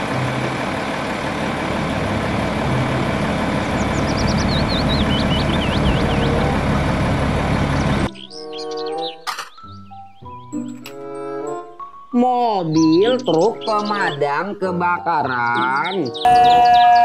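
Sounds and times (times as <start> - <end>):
diesel truck engine running: 0.0 - 9.2
bird chirping: 3.6 - 6.6, 7.7 - 10.8, 11.6 - 17.0.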